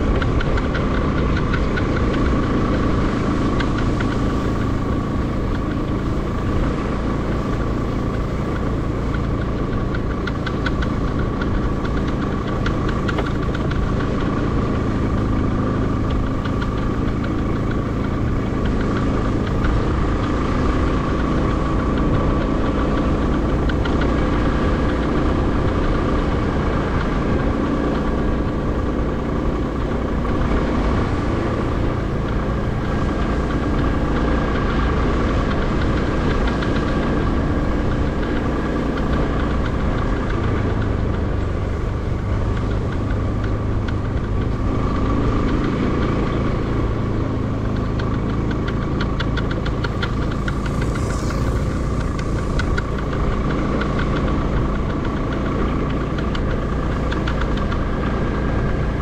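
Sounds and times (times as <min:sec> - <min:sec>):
motorcycle engine droning: 0:00.0 - 0:59.0
thin steady whine: 0:47.6 - 0:59.0.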